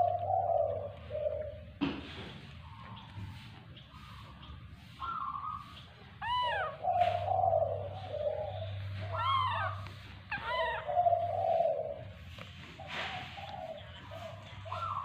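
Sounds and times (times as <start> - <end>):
baby monkey coo calls: 5.0 - 12.2, 12.8 - 15.0.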